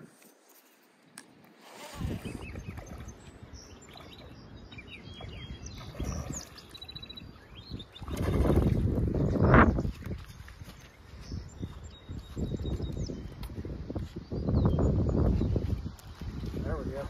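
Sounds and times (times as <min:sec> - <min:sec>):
small birds chirping: 0:00.4 - 0:17.0
wind buffeting microphone: 0:01.8 - 0:17.0.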